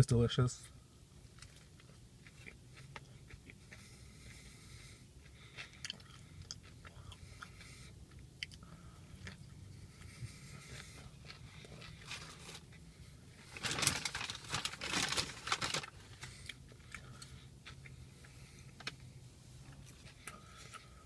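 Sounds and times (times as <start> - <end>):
paper wrapper crinkling: 12.0 - 12.6, 13.5 - 16.3.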